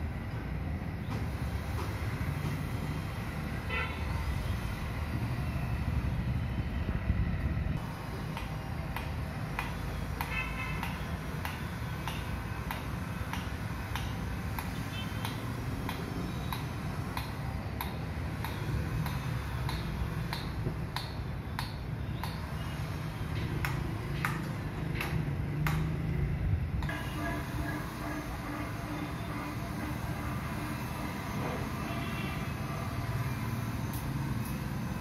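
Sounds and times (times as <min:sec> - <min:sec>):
distant metal hammering: 0:08.3 - 0:22.7.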